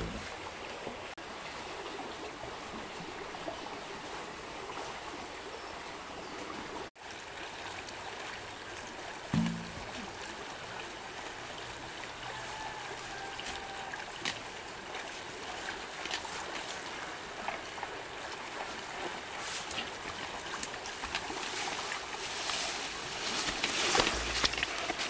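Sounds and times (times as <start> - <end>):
water rushing and splashing: 0.0 - 25.0
short splashes and knocks: 9.2 - 10.6.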